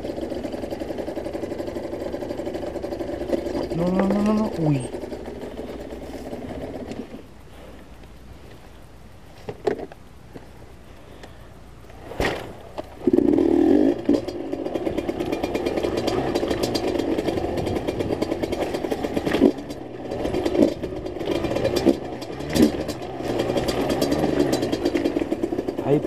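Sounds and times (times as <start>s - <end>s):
dirt bike engine revving: 0.0s - 7.2s, 13.0s - 26.0s.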